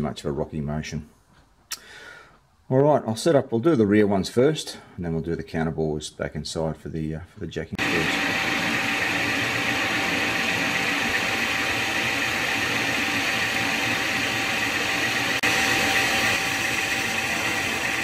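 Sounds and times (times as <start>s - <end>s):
lathe running: 7.8s - 18.0s
metal lathe cutting: 7.8s - 18.0s.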